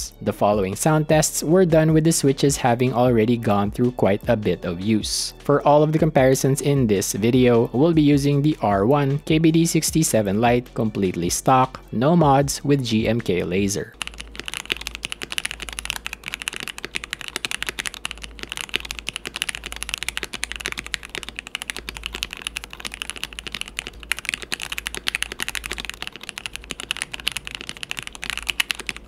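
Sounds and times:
mechanical keyboard typing: 13.2s - 29.0s.

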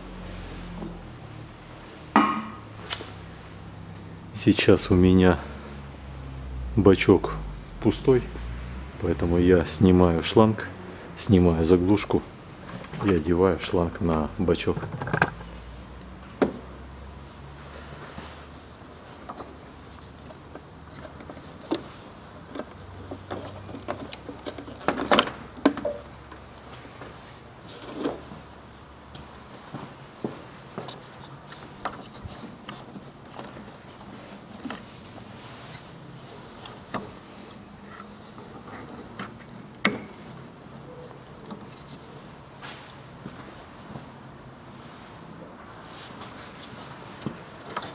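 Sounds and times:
low background noise: 0.0s - 47.9s
plastic and metal clicks and knocks: 14.7s - 15.4s, 22.5s - 26.5s.

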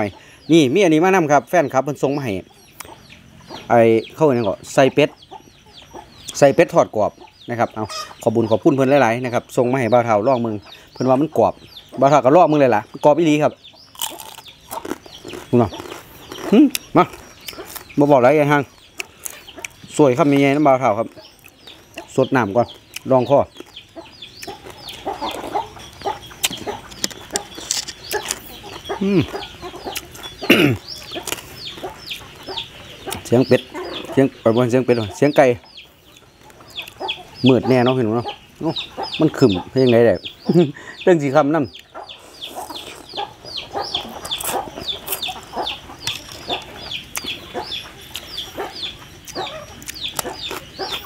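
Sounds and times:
chickens clucking: 0.0s - 51.0s
chewing and slurping: 13.9s - 18.0s, 22.7s - 34.1s, 41.8s - 51.0s.

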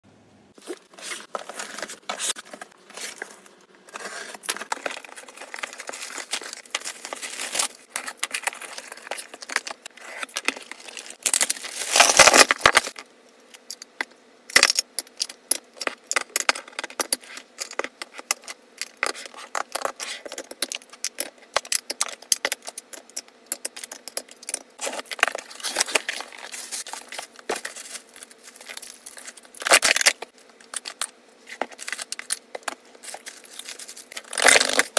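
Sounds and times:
packaging rustle: 0.6s - 13.0s, 24.8s - 31.0s
wrapping crinkling and tearing: 0.6s - 13.0s, 24.8s - 34.9s.

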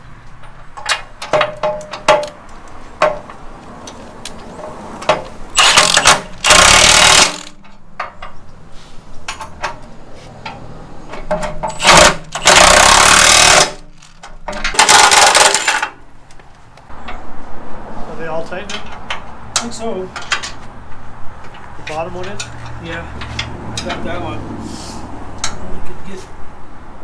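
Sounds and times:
metallic clicks and knocks: 0.2s - 8.6s, 9.2s - 17.3s, 18.6s - 20.7s, 25.4s - 25.7s
impact wrench hammering: 0.8s - 2.4s, 3.0s - 3.3s, 5.0s - 8.3s, 11.2s - 16.0s.

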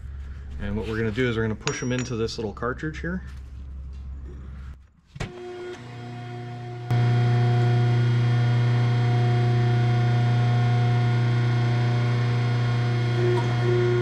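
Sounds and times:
hydraulic press humming: 5.3s - 14.0s.

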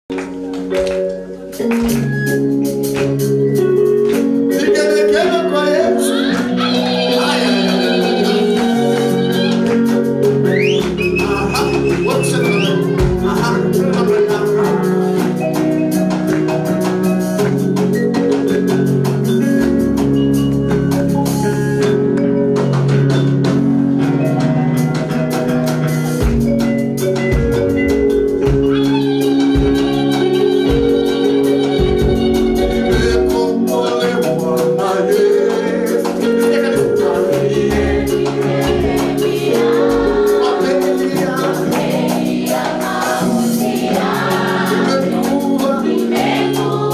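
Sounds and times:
church band music: 0.1s - 46.9s
steady drum beat: 0.1s - 46.9s
person singing: 4.5s - 15.4s, 28.6s - 46.9s.

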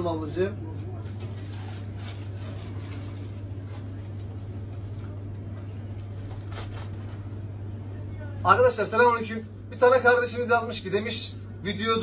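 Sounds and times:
steady low hum: 0.0s - 12.0s
plastic bag rustling: 1.0s - 5.2s.

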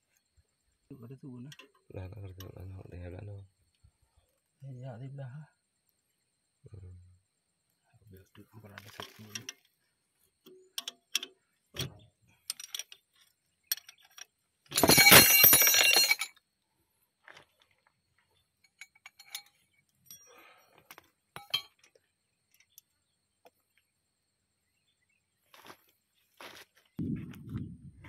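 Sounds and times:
metal tools clinking: 8.8s - 9.6s, 12.4s - 16.4s, 18.6s - 22.0s
loud metal clatter and ringing: 14.8s - 16.3s.

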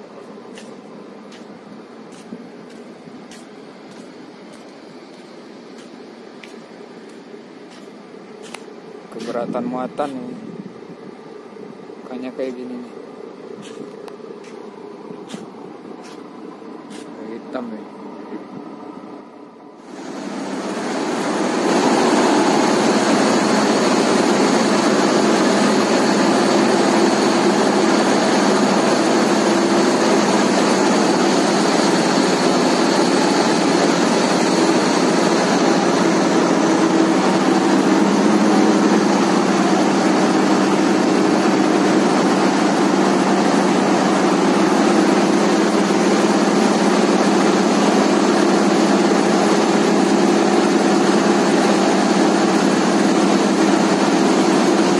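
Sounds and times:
diesel engine running loud: 19.8s - 54.9s.

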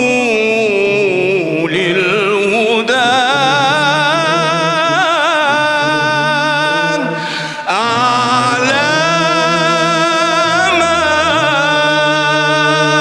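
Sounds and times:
man singing devotional chant: 0.0s - 13.0s
choir humming low: 0.8s - 13.0s.

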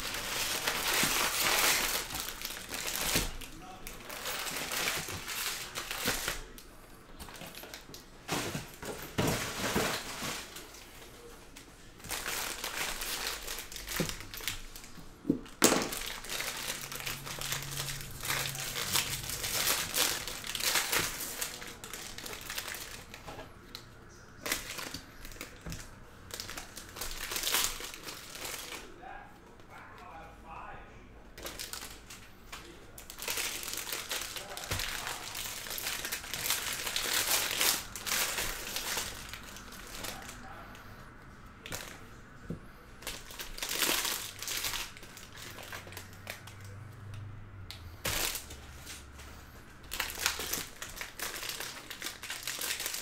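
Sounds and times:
foil wrapper crinkling: 0.0s - 6.6s, 7.2s - 15.0s, 15.6s - 28.9s, 31.4s - 40.6s, 43.0s - 46.8s, 48.0s - 49.1s, 49.8s - 53.0s
sharp crack of foil: 32.6s - 40.6s, 49.9s - 53.0s.

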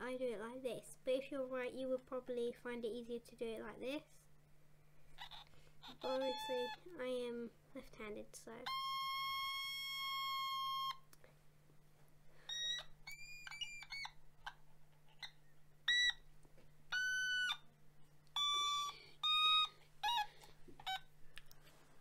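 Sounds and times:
toy synth pitch-bending notes: 5.2s - 6.9s, 8.6s - 11.0s, 16.9s - 17.7s, 18.4s - 21.0s.

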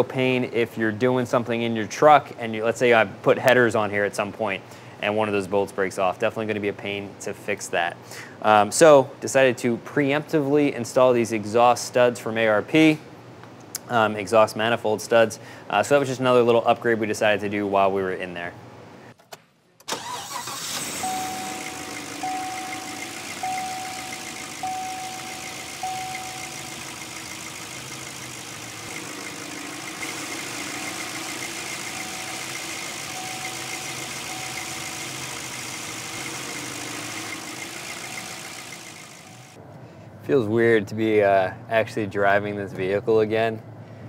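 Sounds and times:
engine starting and idling: 19.9s - 39.6s
dashboard warning chime: 21.0s - 39.5s.

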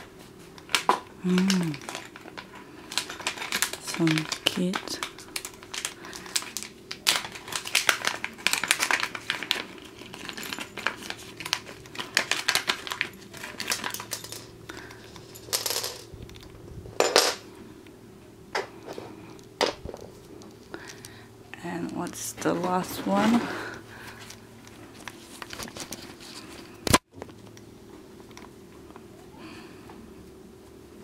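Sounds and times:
plastic bag rustling: 1.3s - 15.5s
small parts clattering on table: 12.2s - 14.5s, 15.1s - 16.1s, 17.0s - 17.4s.

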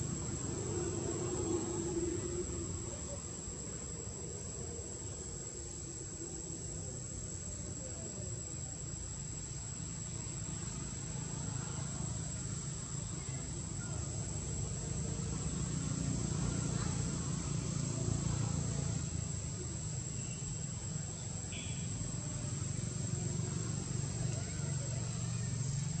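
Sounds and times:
high-pitched insect drone: 15.7s - 26.0s.

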